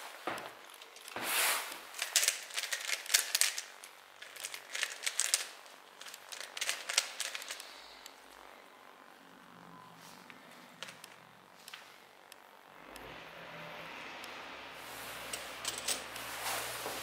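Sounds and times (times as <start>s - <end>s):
rustling: 0.0s - 8.5s
plastic puzzle cube clicks and rattles: 2.0s - 7.7s.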